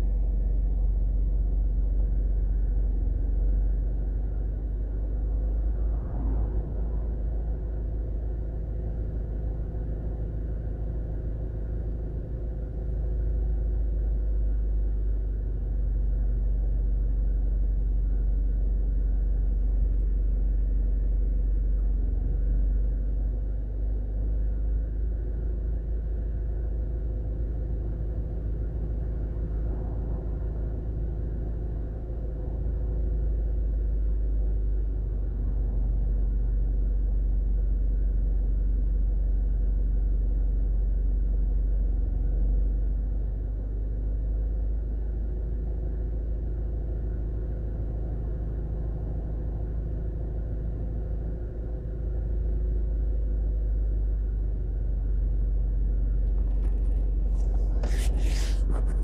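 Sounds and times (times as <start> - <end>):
low traffic rumble: 0.0 - 59.0
cars passing: 5.4 - 8.8.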